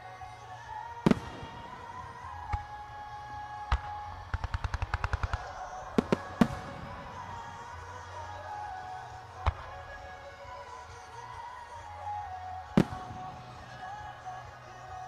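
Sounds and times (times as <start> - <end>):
firework bangs: 0.9 - 10.0, 12.7 - 14.4
rapid firework pops: 3.7 - 7.5.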